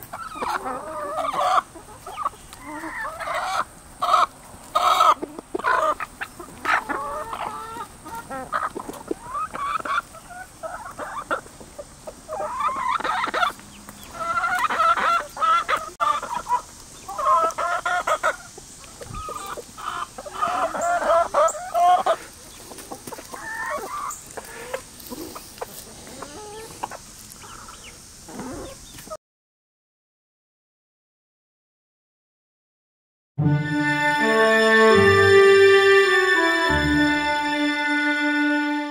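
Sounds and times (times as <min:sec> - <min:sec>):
hens and roosters clucking: 0:00.0 - 0:29.2.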